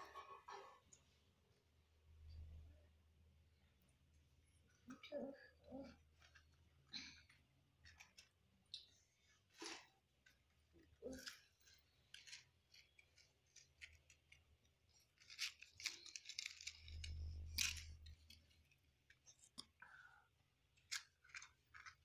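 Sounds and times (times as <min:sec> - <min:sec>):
small items clicking and rustling: 0:06.1 - 0:19.7, 0:20.7 - 0:22.0.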